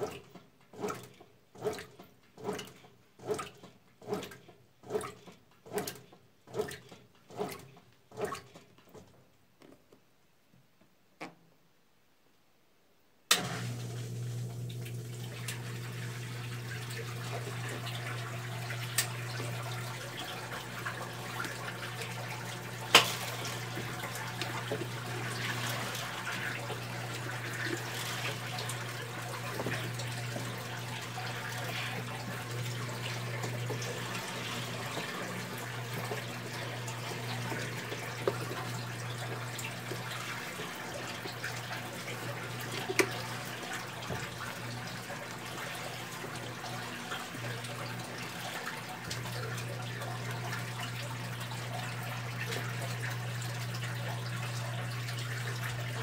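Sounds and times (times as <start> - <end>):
washing machine motor hum: 0.0 - 8.6, 13.3 - 56.0
water and clothes sloshing: 0.0 - 9.1, 13.4 - 56.0.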